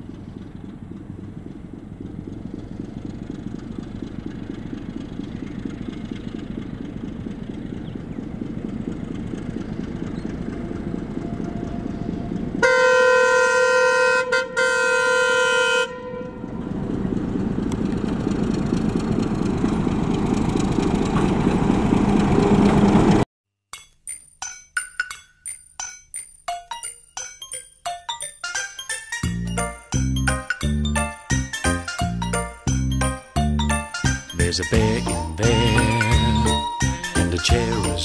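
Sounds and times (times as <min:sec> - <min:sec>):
diesel locomotive engine rumble: 0:00.0 - 0:23.3, 0:29.2 - 0:38.0
locomotive horn chord: 0:10.5 - 0:17.1, 0:33.8 - 0:38.0.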